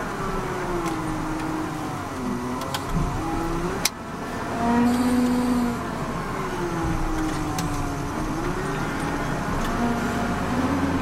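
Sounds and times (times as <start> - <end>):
diesel engine running: 0.0 - 11.0.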